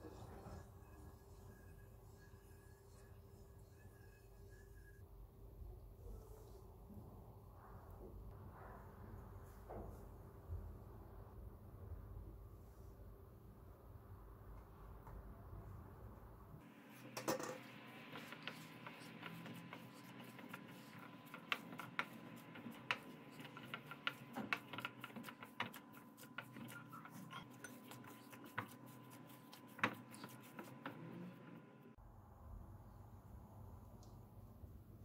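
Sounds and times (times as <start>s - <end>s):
hands kneading sticky dough: 17.0s - 31.8s.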